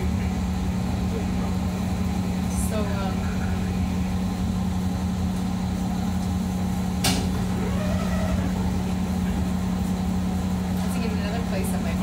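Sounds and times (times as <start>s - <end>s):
train car electrical hum: 0.0s - 12.0s.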